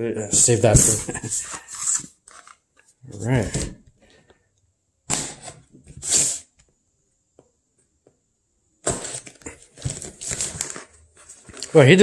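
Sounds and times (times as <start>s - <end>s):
packing tape tearing: 5.1s - 6.5s, 8.8s - 11.8s
cardboard scraping: 8.8s - 11.8s.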